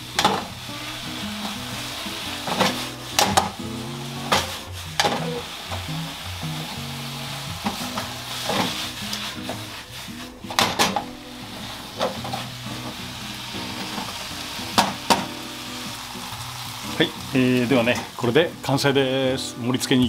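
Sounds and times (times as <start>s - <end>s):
mushrooms sizzling in a pan: 0.0s - 20.0s
spatula knocking and scraping pan: 0.2s - 0.5s, 2.4s - 3.6s, 4.2s - 6.0s, 7.6s - 13.0s.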